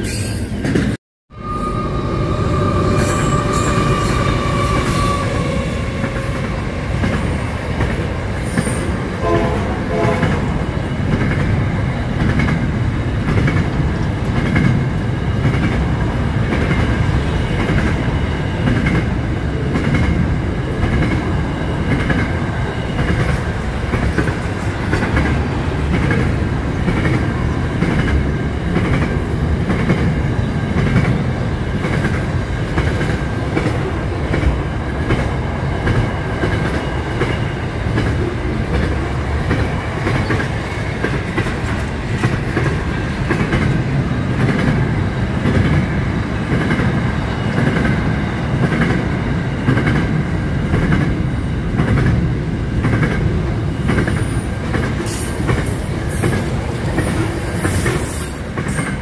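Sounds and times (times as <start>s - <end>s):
diesel locomotive passing: 0.0s - 59.0s
high held tone: 1.3s - 6.5s.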